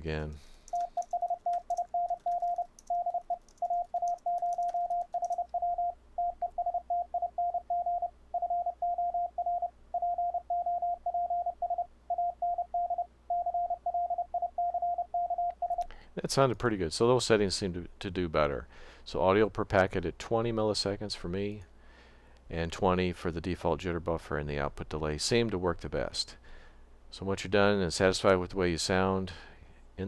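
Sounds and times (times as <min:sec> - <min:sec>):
morse code keyed tone: 0:00.7 - 0:15.8.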